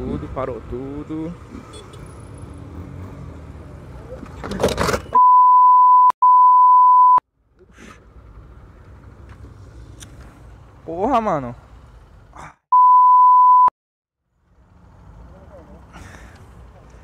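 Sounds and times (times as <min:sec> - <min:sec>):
high-pitched censor bleep: 0:05.2 - 0:07.2, 0:12.7 - 0:13.7.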